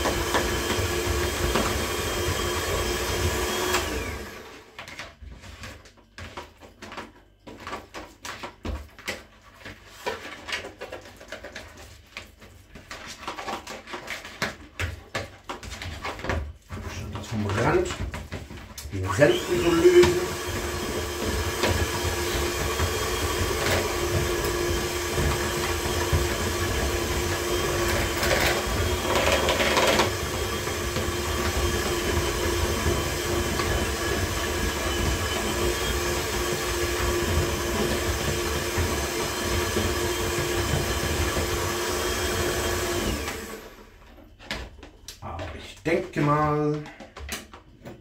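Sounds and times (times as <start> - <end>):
electric hand mixer whining: 0.0 - 4.8, 18.8 - 44.2.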